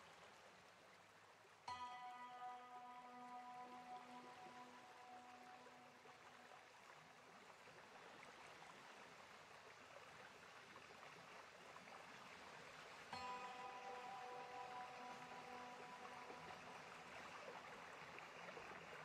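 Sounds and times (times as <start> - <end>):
low hiss: 0.0 - 19.0
soft held chord music: 1.7 - 8.0, 13.1 - 19.0.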